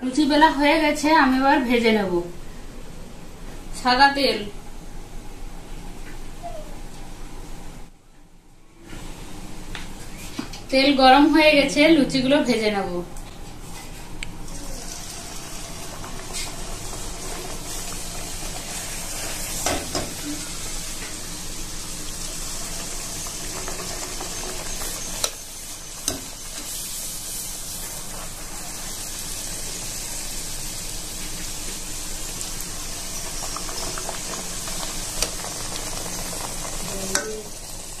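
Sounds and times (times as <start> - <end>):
flatbread deep-frying in oil: 14.5 - 38.0.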